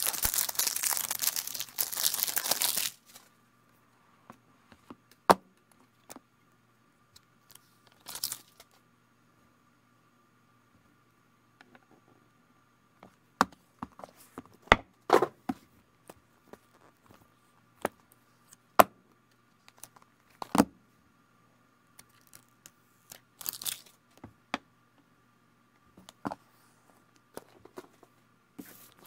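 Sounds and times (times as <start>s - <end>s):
wrap tearing: 0.0s - 3.0s
faint steady hum: 0.0s - 29.0s.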